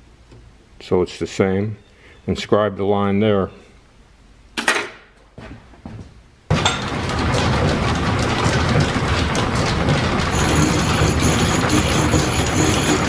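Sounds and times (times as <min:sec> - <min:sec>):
milling machine clatter: 0:06.5 - 0:13.0.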